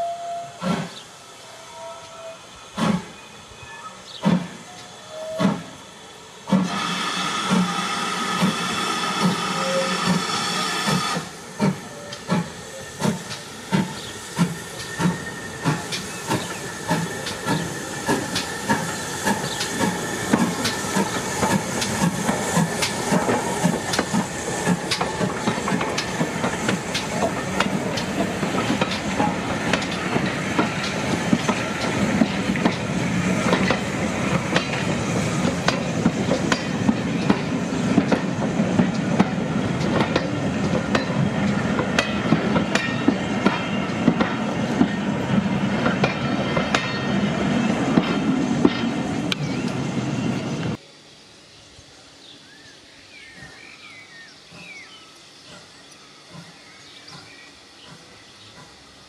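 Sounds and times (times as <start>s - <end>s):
train wheels clattering over rail joints: 6.5s - 49.8s.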